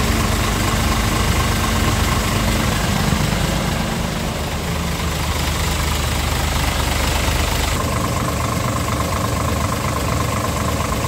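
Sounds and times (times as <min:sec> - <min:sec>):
steady whine: 0:00.0 - 0:08.7
truck diesel engine idling: 0:00.0 - 0:11.0.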